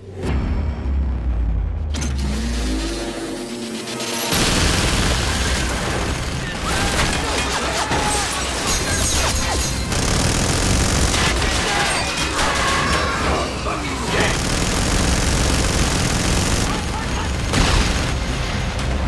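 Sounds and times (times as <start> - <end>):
minigun firing: 3.9 - 7.8, 8.8 - 13.1, 14.0 - 18.4.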